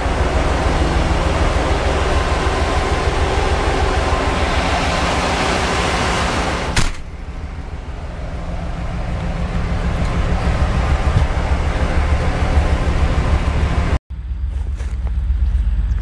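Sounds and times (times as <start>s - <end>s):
diesel locomotive engine rumbling: 0.0s - 16.0s
quiet outdoor low rumble: 6.8s - 16.0s.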